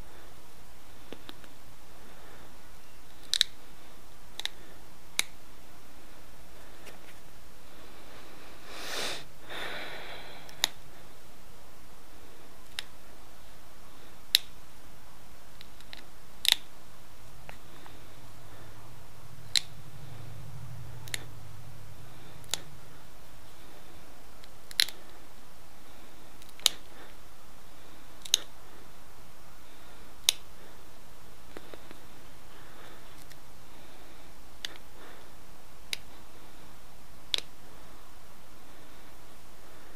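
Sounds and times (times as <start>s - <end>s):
person sniffing: 8.2s - 10.7s.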